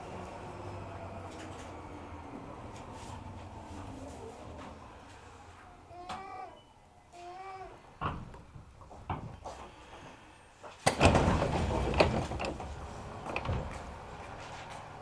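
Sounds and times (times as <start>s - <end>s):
train doors sliding open: 10.8s - 15.0s.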